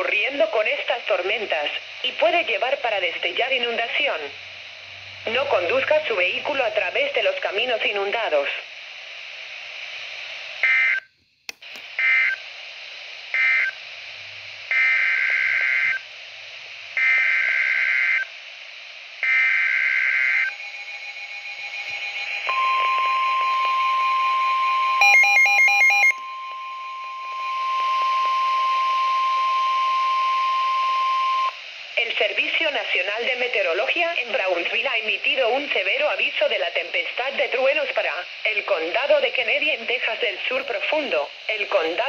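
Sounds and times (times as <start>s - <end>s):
steady warning alarm tone: 19.2s - 31.6s
rapid pulsing beep: 20.4s - 31.6s.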